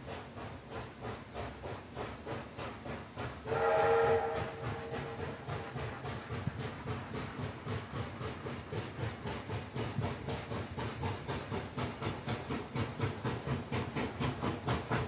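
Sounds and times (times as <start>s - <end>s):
steam locomotive exhaust beating: 0.0s - 15.0s
steam whistle blast: 3.5s - 5.2s.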